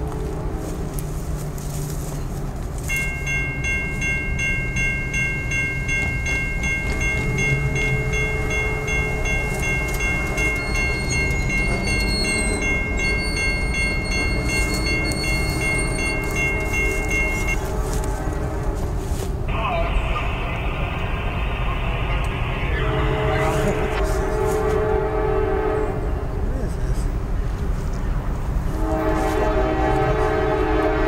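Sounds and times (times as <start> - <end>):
crossing warning bell ringing: 0.0 - 18.7, 22.8 - 26.0.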